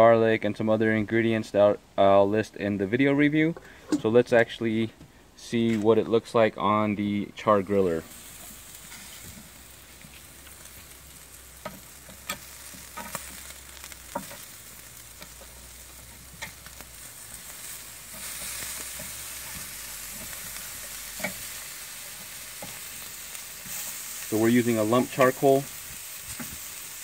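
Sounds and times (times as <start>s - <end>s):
meat sizzling on a grill: 7.6s - 27.0s.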